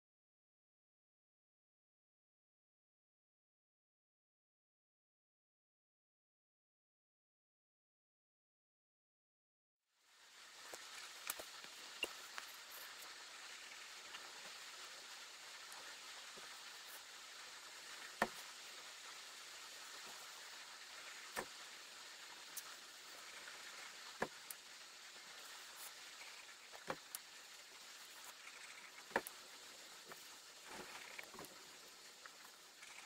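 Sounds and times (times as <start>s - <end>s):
faint steady hiss: 9.9s - 33.0s.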